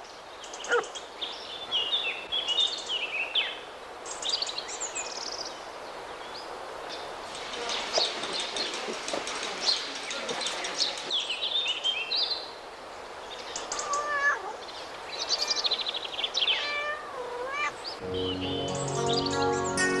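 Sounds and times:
cat meowing: 0:13.8 - 0:14.6, 0:16.6 - 0:17.8
music: 0:18.0 - 0:20.0.

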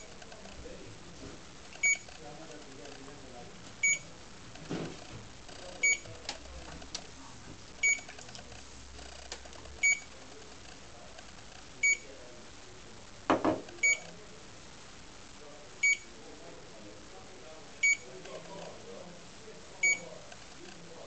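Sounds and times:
dash camera electronic beeps: 0:01.8 - 0:02.1.

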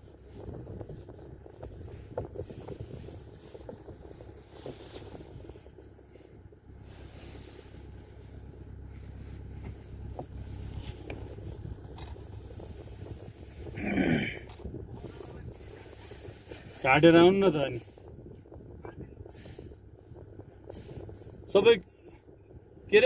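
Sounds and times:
vehicle engine idling: 0:00.0 - 0:23.0
small clicks and rattles: 0:11.0 - 0:13.7.

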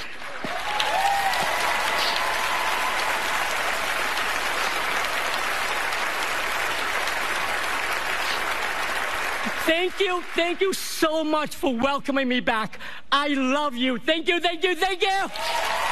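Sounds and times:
audience applauding: 0:00.0 - 0:10.9, 0:15.3 - 0:15.9.

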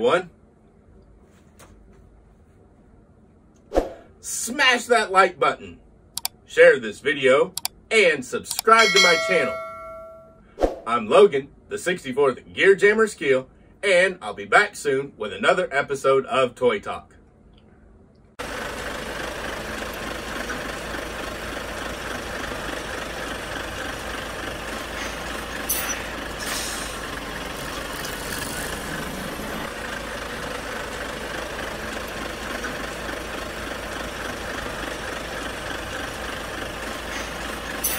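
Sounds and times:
heavy truck running: 0:18.4 - 0:37.9.

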